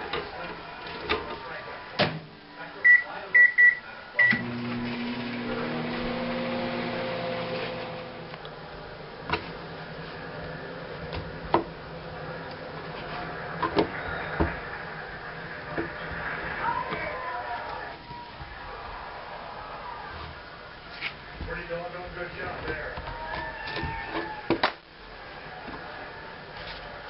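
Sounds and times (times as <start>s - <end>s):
microwave humming: 4.2s - 20.7s.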